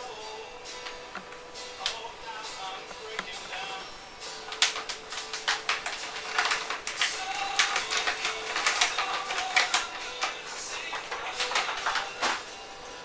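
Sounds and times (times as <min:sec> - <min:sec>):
plastic bag crinkling: 0:02.9 - 0:12.8
sugar pouring into bucket: 0:04.4 - 0:12.5.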